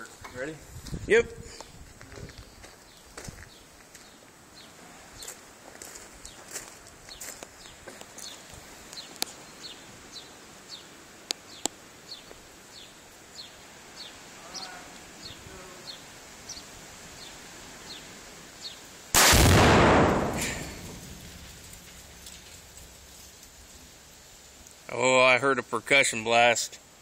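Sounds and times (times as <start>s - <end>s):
rifle shot: 19.2s - 21.5s
exploding target blast: 19.2s - 21.8s.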